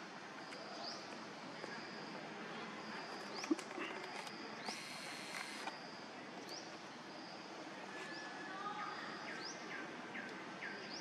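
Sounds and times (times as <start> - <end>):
faint steady high tone: 0.0 - 11.0.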